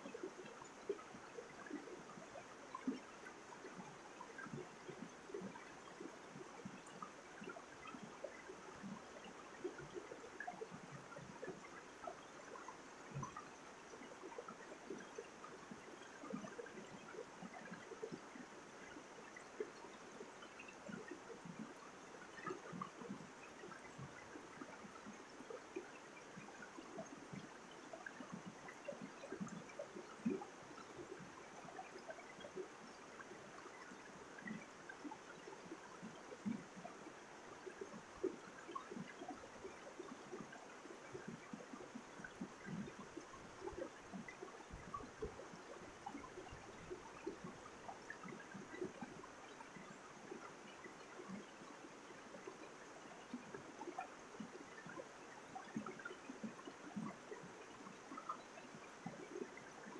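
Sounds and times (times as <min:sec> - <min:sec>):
stream flowing over rocks: 0:00.1 - 0:59.9.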